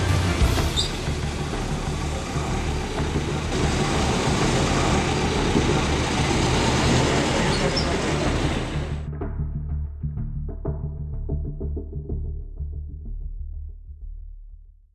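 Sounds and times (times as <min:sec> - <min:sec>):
vehicle engine and road noise: 0:00.0 - 0:09.1.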